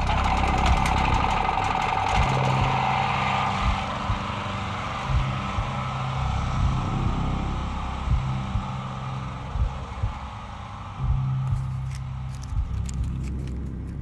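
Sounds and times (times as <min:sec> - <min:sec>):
higher hum: 0:00.0 - 0:14.0
low pulsing engine-like rumble: 0:00.0 - 0:14.0.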